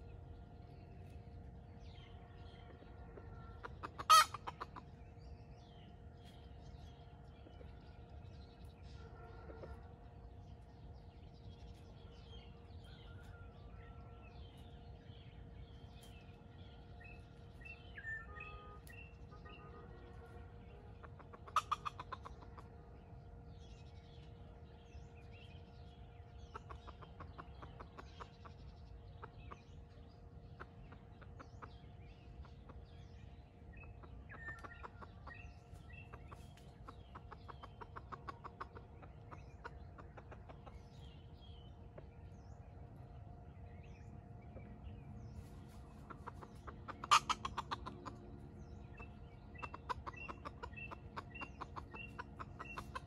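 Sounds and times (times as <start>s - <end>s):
small birds chirping: 0.0s - 53.0s
wild chicken clucking: 0.0s - 53.0s.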